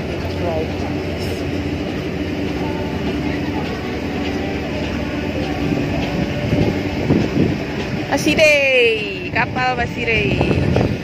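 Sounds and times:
ship diesel engine drone: 0.0 - 11.0.

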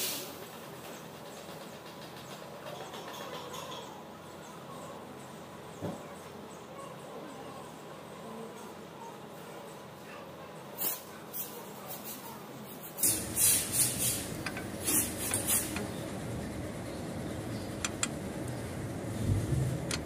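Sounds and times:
rubbing and scraping engine parts: 12.8 - 16.6
steady low hum: 13.0 - 20.0.

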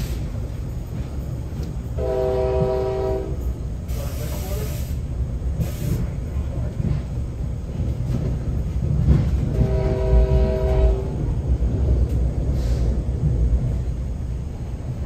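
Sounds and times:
train coach rumbling on rails: 0.0 - 15.0
locomotive air horn blast: 2.0 - 3.4, 9.5 - 11.2.

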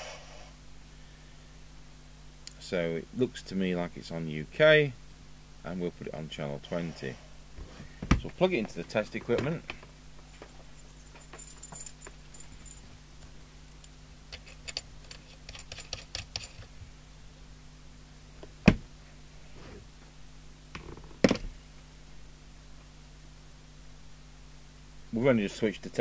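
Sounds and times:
low steady hum: 0.0 - 26.0
metallic clicks and rattles: 14.3 - 16.7.

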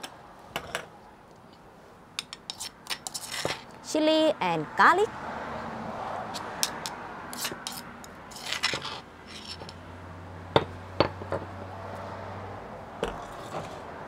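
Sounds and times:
metal spoon scraping stone pestle: 2.2 - 3.7, 6.4 - 9.8, 13.0 - 13.9.

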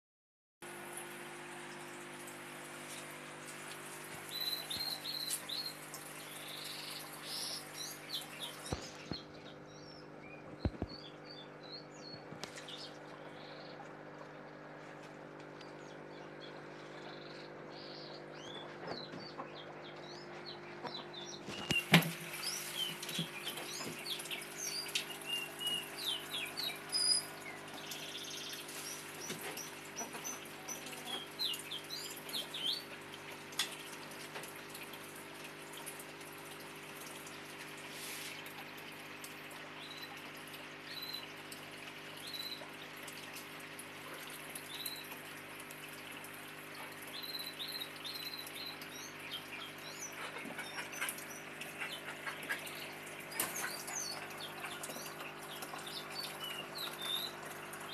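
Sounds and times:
small birds chirping: 2.8 - 14.0, 14.8 - 33.0, 39.8 - 42.9, 44.0 - 45.2, 46.7 - 57.9.

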